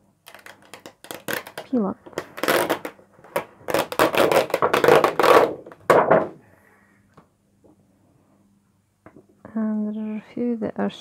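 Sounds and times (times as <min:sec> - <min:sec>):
plastic sheet peeling with crackles: 0:00.2 - 0:05.9.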